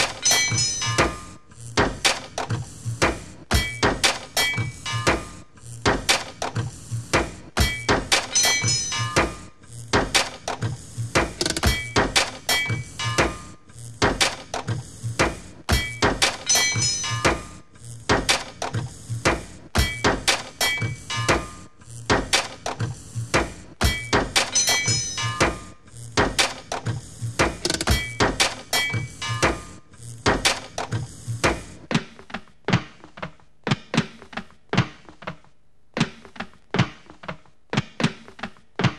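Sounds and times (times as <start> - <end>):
ringing metallic tones: 0.0 - 1.3, 8.3 - 9.4, 16.4 - 17.5, 24.0 - 25.7
metal clanks and knocks beat: 0.0 - 35.1.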